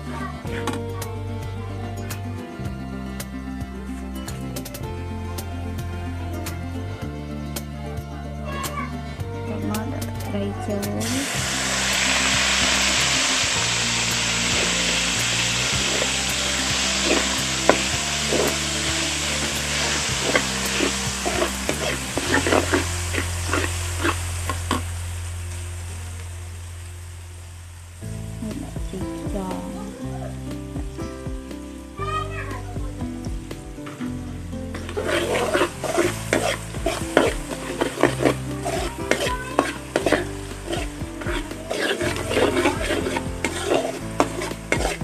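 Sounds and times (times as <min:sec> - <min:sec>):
metal spatula scraping wok: 0:09.7 - 0:24.9, 0:34.7 - 0:45.0
food sizzling in hot oil: 0:11.0 - 0:45.0.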